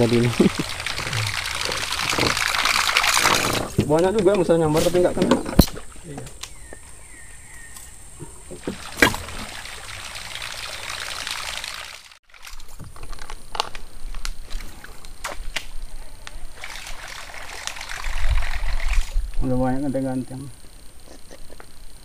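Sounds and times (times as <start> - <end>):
water sloshing around canoe: 0.0 - 3.9, 8.2 - 10.7.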